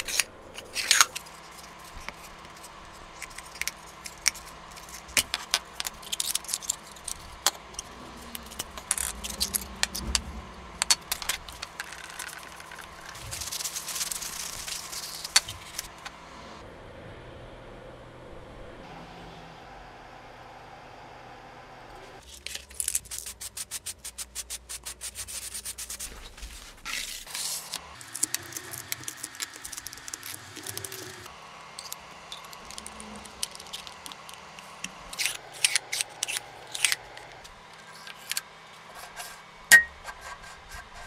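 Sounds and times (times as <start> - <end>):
sharp metallic clank: 39.7 - 40.0.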